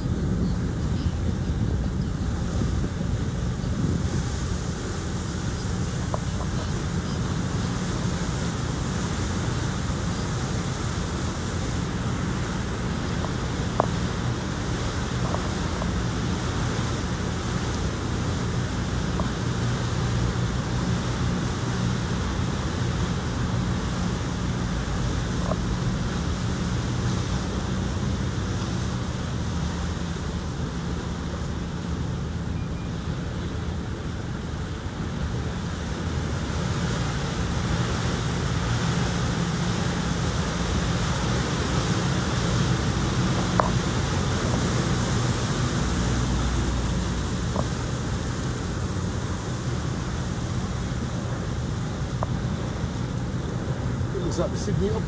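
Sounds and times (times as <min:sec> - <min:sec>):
wind buffeting microphone: 0:00.0 - 0:32.5
boat engine running: 0:00.0 - 0:55.0
water rushing along hull: 0:00.0 - 0:55.0.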